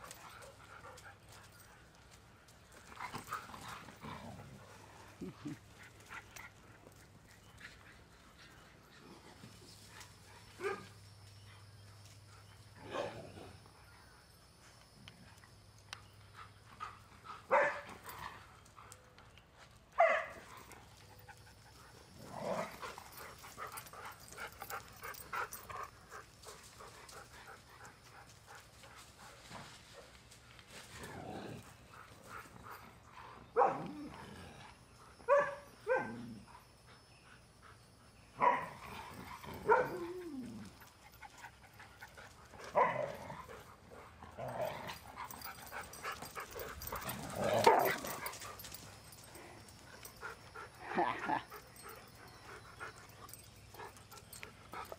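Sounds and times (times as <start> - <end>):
dogs barking and yelping: 16.4 - 19.3, 20.0 - 29.8, 31.5 - 54.9.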